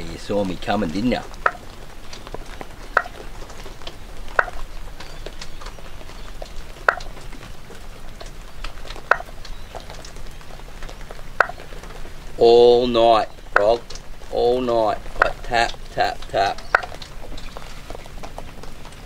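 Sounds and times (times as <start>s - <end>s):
light rain pattering: 0.0s - 19.0s
faint ticks: 1.1s - 12.1s
sharp tocks from drain: 1.3s - 1.8s, 4.3s - 4.7s, 9.0s - 9.5s, 11.4s - 11.7s, 15.2s - 17.5s.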